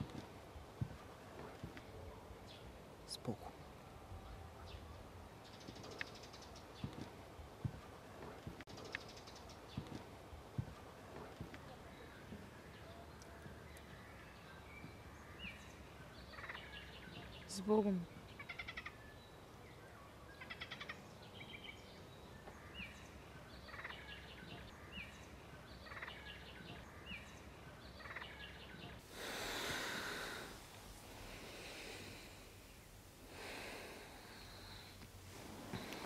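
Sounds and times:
songbirds trilling and chirping: 0.0s - 36.0s
rushing hiss: 29.0s - 36.0s.

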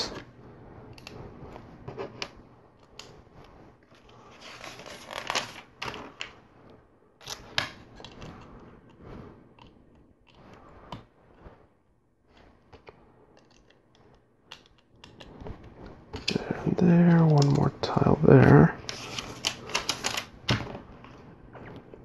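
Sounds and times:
plastic pieces rustling: 18.8s - 20.6s.

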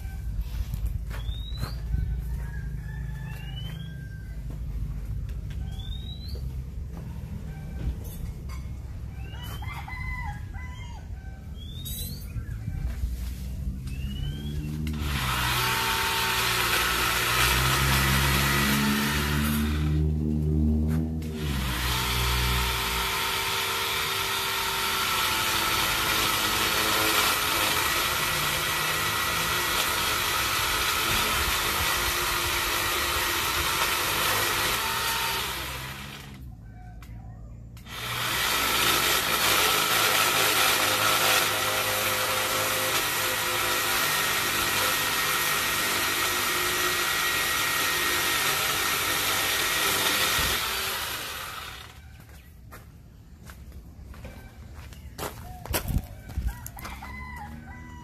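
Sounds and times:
electric chainsaw cutting branches: 13.7s - 36.5s, 37.8s - 52.2s.

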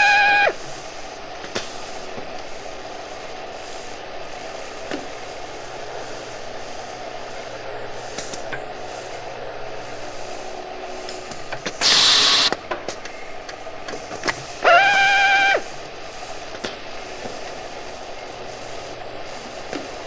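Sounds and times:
electric drill motor whining: 0.0s - 0.6s, 14.6s - 15.7s
loud burst of hiss: 0.0s - 9.0s, 9.6s - 12.7s, 14.0s - 20.0s.

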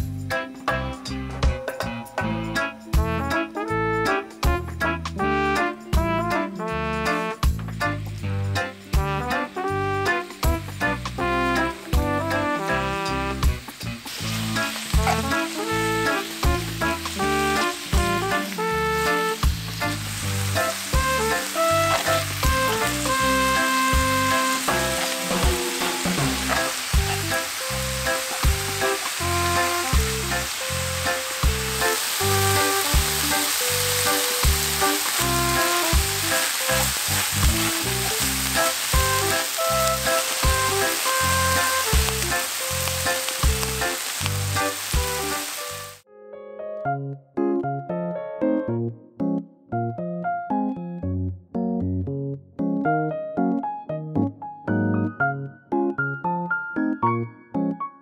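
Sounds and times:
background music with beat: 0.0s - 44.0s
food sizzling in a pan: 7.1s - 46.0s.

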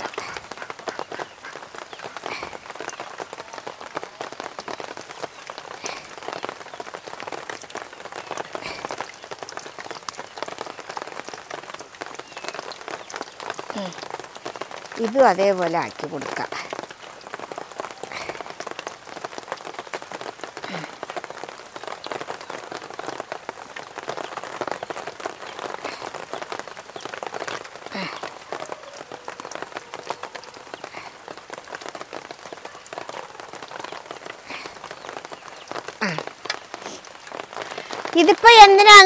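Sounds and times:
hot oil sizzling and crackling: 0.0s - 38.9s.

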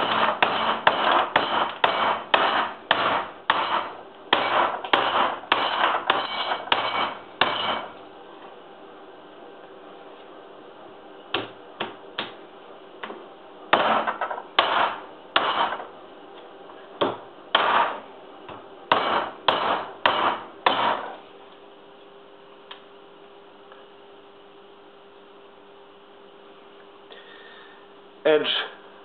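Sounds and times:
axe chopping bones on wood: 0.0s - 7.9s, 13.0s - 15.7s, 17.0s - 18.0s, 18.9s - 21.0s.

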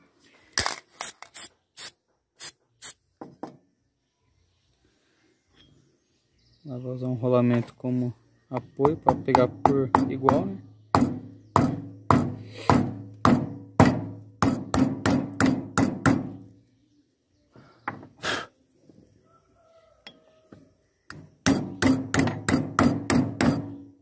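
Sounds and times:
hammer striking metal: 8.8s - 16.4s, 21.1s - 23.8s.

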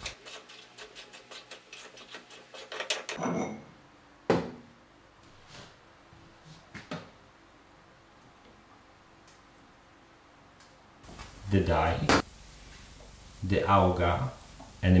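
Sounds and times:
metal threads clicking and grinding: 0.1s - 3.3s.

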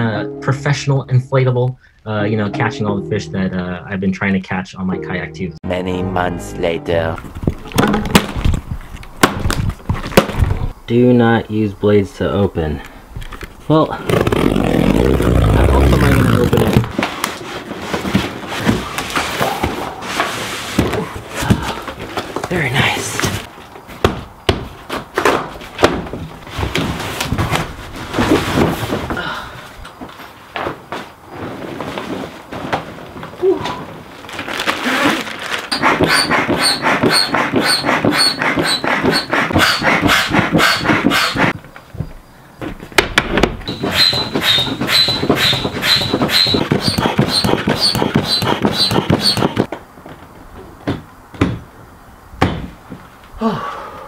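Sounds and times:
cardboard flaps flexing and scraping: 13.9s - 29.2s, 30.5s - 41.6s, 42.7s - 49.8s
foot pump air strokes squeaking: 35.7s - 41.6s, 43.7s - 49.7s.

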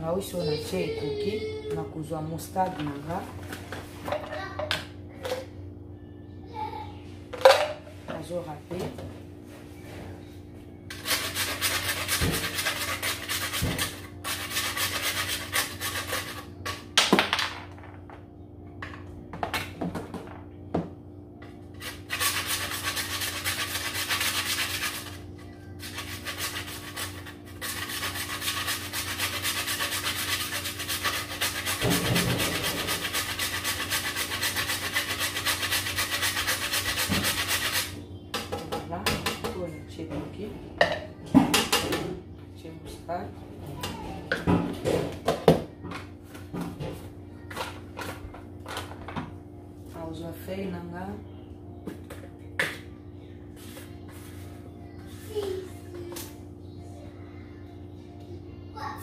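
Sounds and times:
grating on metal grater: 10.9s - 16.8s, 21.7s - 25.2s, 25.8s - 38.0s.

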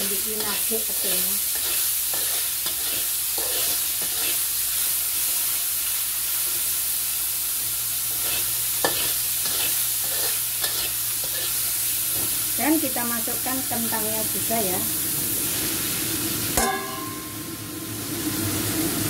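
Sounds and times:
food sizzling in oil: 0.0s - 19.0s
metal spatula scraping a wok: 0.1s - 5.6s, 8.1s - 11.9s.

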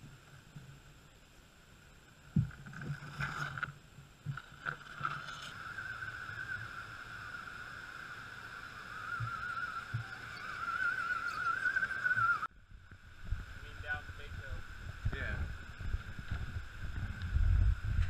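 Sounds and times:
tyres scraping against rock: 2.6s - 5.6s
electric motor whining: 5.2s - 12.5s.

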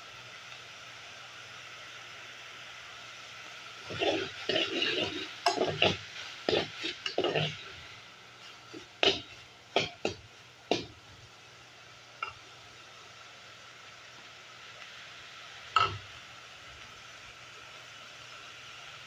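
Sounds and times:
meat sizzling in a pan: 0.0s - 19.0s
metal spoon scraping a pan: 3.8s - 11.0s.

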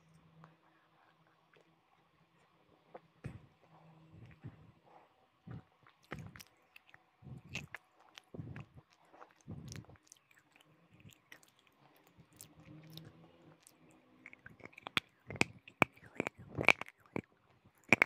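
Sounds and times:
person chewing crunchy pieces: 5.8s - 18.0s.

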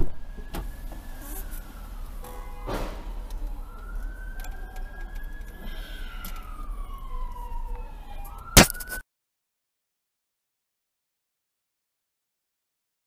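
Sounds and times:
police siren wailing: 0.0s - 9.0s.

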